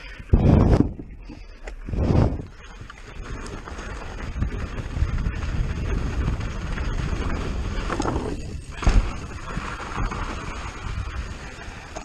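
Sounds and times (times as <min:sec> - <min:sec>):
mountain bike rattling: 0:00.0 - 0:12.0
bike landing thud: 0:06.8 - 0:10.9.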